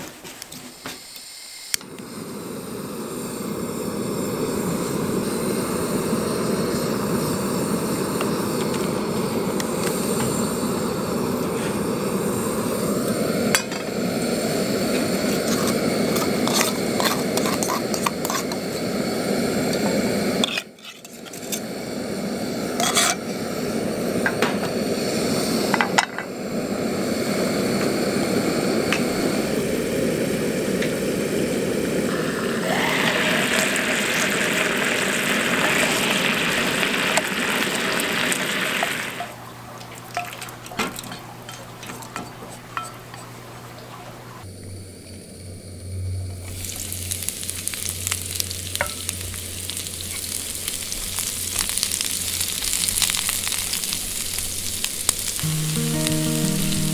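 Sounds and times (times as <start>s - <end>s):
gas stove burner running: 0.0s - 39.5s, 40.8s - 56.9s
sauce sizzling: 1.8s - 20.6s, 26.4s - 39.4s, 46.4s - 56.9s.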